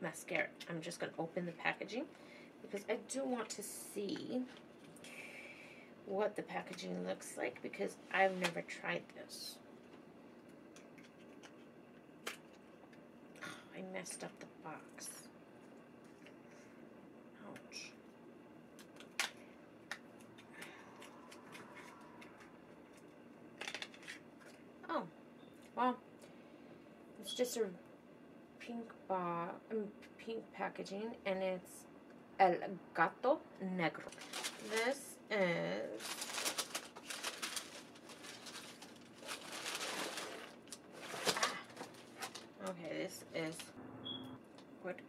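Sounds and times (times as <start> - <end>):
paper packaging rustling: 34.0 - 35.0, 35.9 - 42.8.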